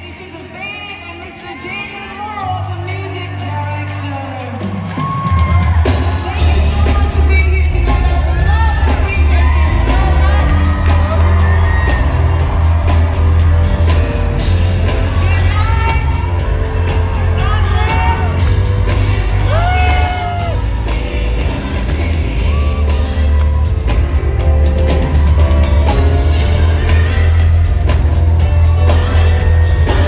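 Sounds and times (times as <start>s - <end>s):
woman singing: 0.0s - 4.7s, 6.0s - 12.0s, 14.8s - 23.7s
gospel ballad with heavy bass: 0.0s - 30.0s
audience whooping and shouting: 4.5s - 30.0s.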